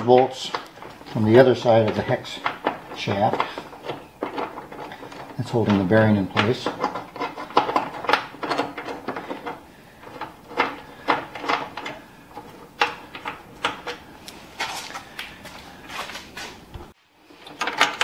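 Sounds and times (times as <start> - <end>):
hand ratchet metal clicks: 0.0 - 14.0.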